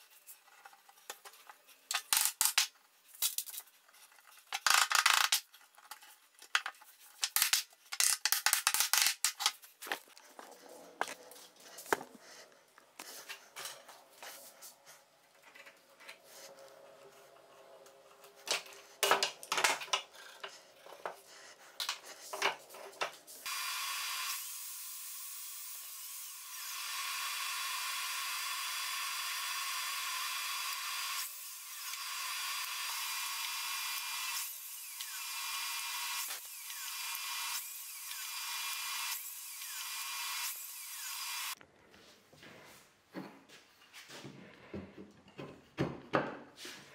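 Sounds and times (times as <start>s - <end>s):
power tool running: 23.5s - 41.6s.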